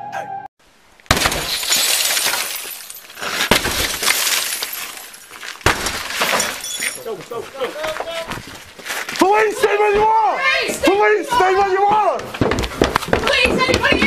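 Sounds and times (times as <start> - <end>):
glass breaking: 1.1 - 7.5.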